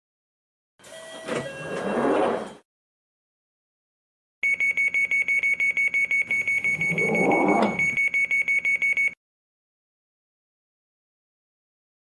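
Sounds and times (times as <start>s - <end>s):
fast high warning beeps: 4.4s - 9.2s.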